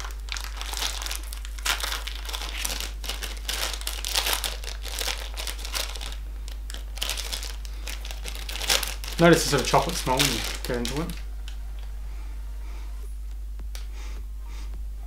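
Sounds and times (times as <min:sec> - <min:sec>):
plastic wrapper crinkling: 0:00.0 - 0:11.9.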